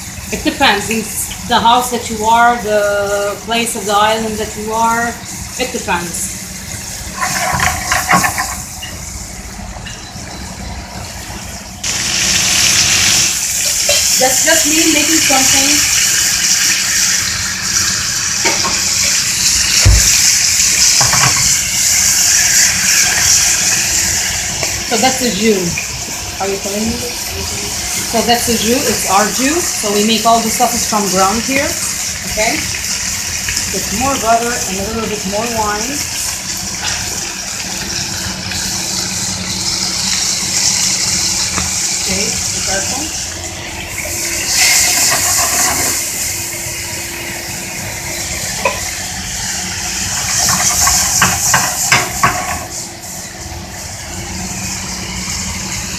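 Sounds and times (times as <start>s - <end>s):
low machine hum: 0.0s - 55.9s
steak sizzling in pan sauce: 0.0s - 55.9s.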